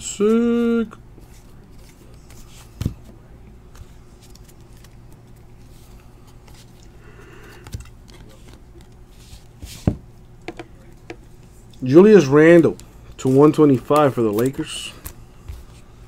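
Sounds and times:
low steady hum: 0.0s - 16.0s
cards sliding and rustling: 1.2s - 3.1s, 3.7s - 10.0s.

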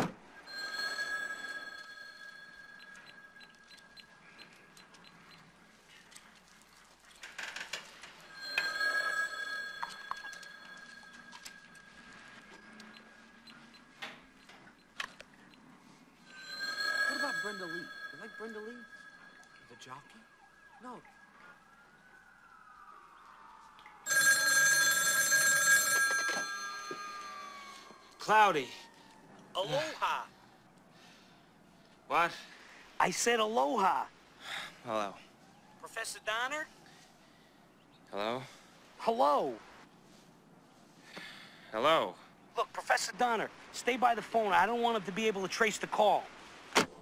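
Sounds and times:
steady ringing tone: 0.3s - 5.3s, 8.2s - 13.9s, 15.5s - 20.6s, 24.1s - 28.4s.

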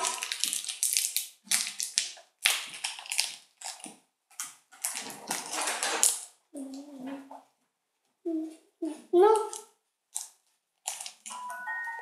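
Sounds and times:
plastic wrapper crackling: 0.0s - 6.4s, 9.4s - 11.6s.

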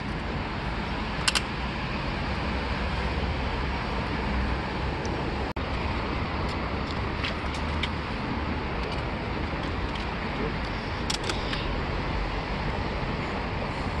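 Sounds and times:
traffic rumble: 0.0s - 14.0s
bicycle parts clicking: 1.2s - 1.5s, 8.8s - 11.8s.

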